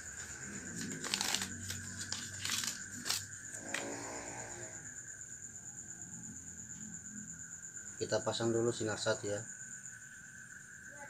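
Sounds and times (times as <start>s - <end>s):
paper crinkling and rustling: 0.0s - 3.3s.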